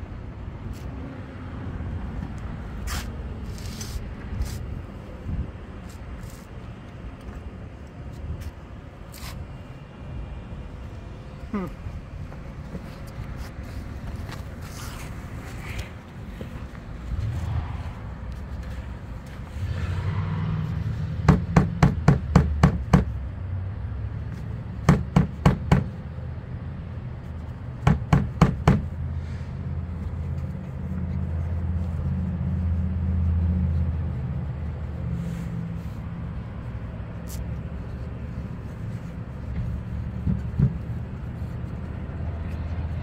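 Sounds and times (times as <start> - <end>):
knocking on exhaust pipe: 21.2 - 23.1, 24.8 - 26.0, 27.8 - 28.9.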